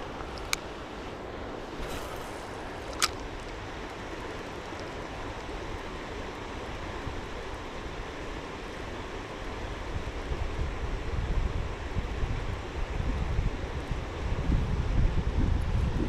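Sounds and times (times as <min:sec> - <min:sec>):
river water rushing over stones: 0:00.0 - 0:12.0.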